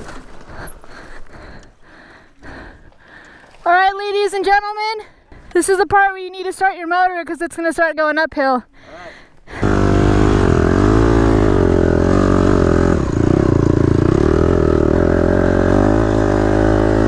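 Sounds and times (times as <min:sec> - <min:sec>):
dirt bike engine revving: 0:09.5 - 0:17.0.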